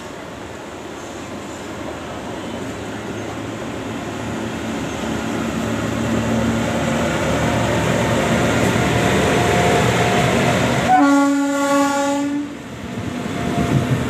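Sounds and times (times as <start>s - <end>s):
locomotive low hum: 0.0s - 10.9s
locomotive wheels on rail: 0.0s - 14.0s.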